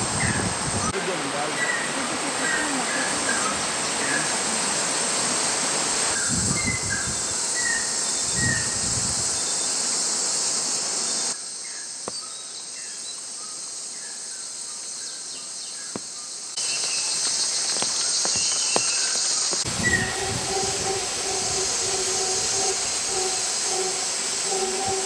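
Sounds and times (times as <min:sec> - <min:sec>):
high-pitched insect drone: 0:01.5 - 0:12.4, 0:16.6 - 0:25.0
bird chirps: 0:16.6 - 0:25.0.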